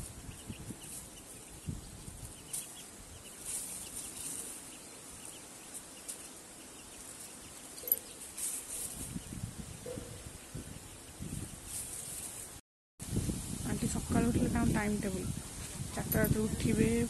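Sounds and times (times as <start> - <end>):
rustling in dry leaves: 0.0 - 9.6, 11.3 - 17.0
chicks peeping: 0.1 - 11.8.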